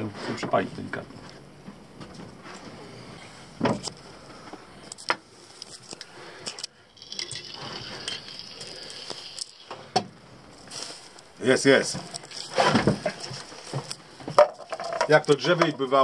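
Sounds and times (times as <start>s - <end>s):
rustling: 10.5s - 16.0s
objects knocking on a table: 13.8s - 15.8s.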